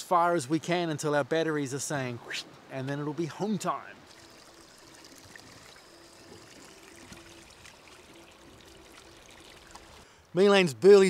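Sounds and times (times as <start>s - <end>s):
faint hum: 1.0s - 10.4s
water lapping against a boat: 4.0s - 10.1s.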